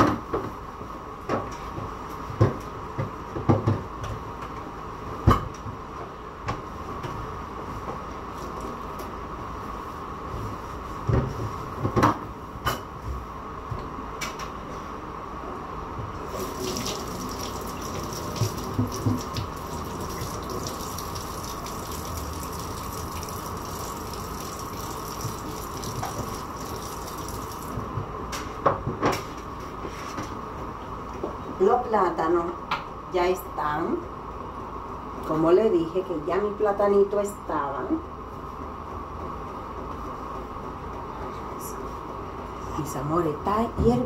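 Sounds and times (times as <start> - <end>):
tap running into sink: 16.3 - 27.9.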